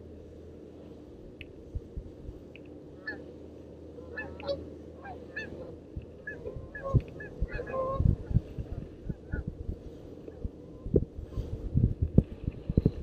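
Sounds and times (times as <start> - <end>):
geese honking: 2.9 - 9.5.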